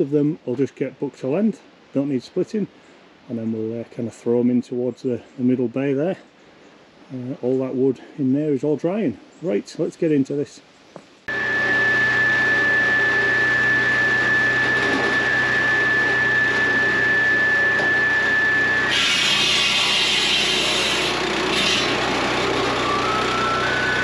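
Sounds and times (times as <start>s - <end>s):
saw engine whining: 11.3s - 24.0s
circular blade cutting log: 11.6s - 24.0s.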